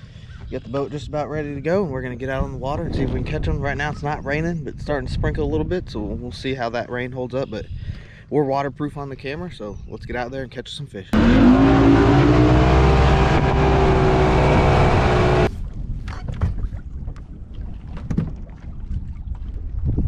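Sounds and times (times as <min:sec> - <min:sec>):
wind noise on microphone: 0:00.0 - 0:10.5, 0:12.1 - 0:20.0
outboard motor running: 0:11.2 - 0:15.5.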